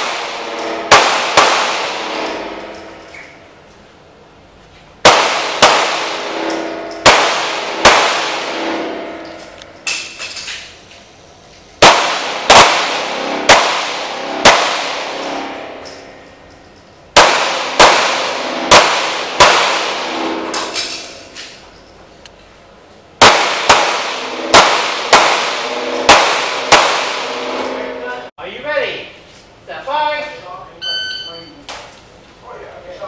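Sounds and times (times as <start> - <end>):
handgun shots echoing: 0.0 - 2.9, 5.0 - 8.9, 11.8 - 16.0, 17.2 - 21.2, 23.2 - 27.4.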